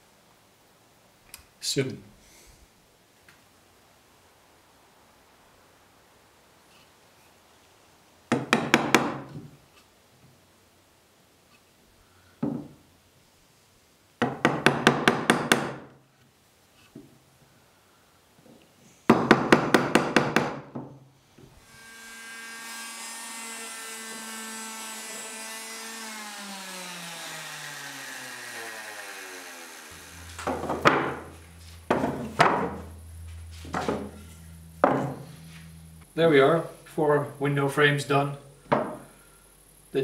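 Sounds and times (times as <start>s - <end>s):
hammering on wood: 8.3s - 9.4s, 14.2s - 15.9s, 19.1s - 20.9s, 30.4s - 31.3s, 31.9s - 33.0s, 34.8s - 35.2s
power tool motor running: 21.6s - 36.2s
low steady hum: 27.4s - 40.0s
knocks on wood: 30.4s - 31.2s, 31.9s - 32.8s, 34.8s - 35.2s.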